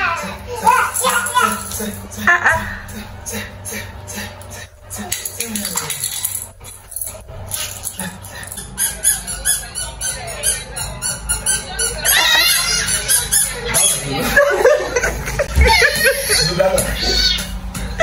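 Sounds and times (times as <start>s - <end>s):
small child squealing and babbling: 12.0s - 13.3s.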